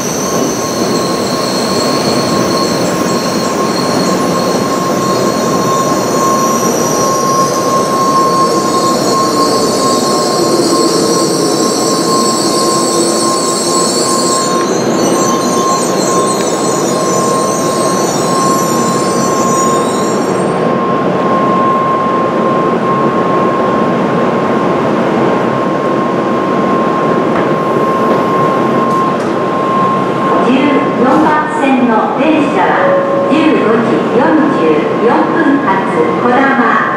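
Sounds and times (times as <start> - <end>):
train brakes hissing and squealing: 0.0 - 21.9
steady high tone: 0.0 - 36.3
train rumble: 0.0 - 36.9.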